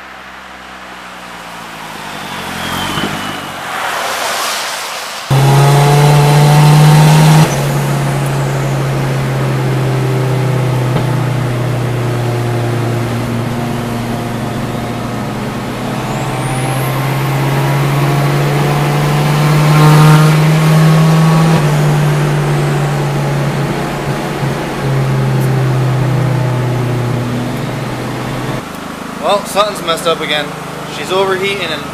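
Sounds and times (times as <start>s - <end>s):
car engine drone: 0.0s - 31.9s
faint high whistle: 2.0s - 5.3s.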